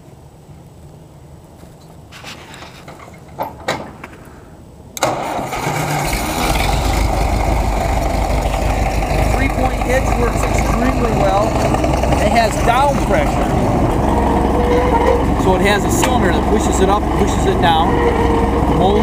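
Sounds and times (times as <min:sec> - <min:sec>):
tractor engine starting and running: 0:05.0 - 0:19.0.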